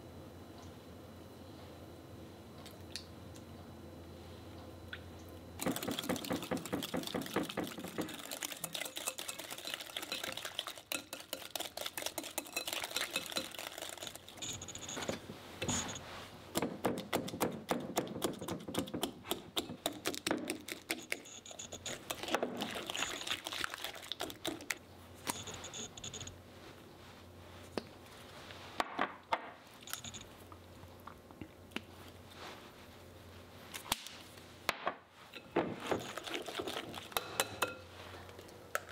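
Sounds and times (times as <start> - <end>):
whisk beating batter in glass bowl: 5.6 - 15.0, 19.6 - 24.7, 35.9 - 37.8.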